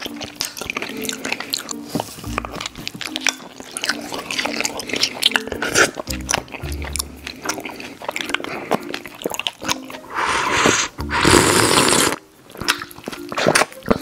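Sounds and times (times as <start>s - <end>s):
wet mouth clicks and smacks: 0.0s - 14.0s
loud sucking slurps: 10.0s - 12.2s.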